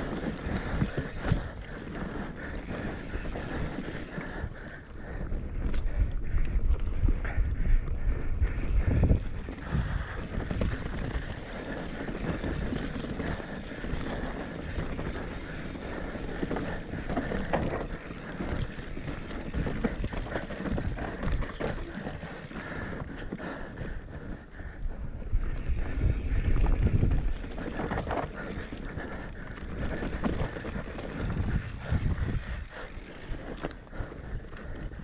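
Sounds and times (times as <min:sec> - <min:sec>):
bike rattling over bumps: 0:00.0 - 0:35.0
bike tyres on dirt: 0:00.0 - 0:35.0
wind on microphone: 0:05.2 - 0:23.2, 0:24.0 - 0:33.6.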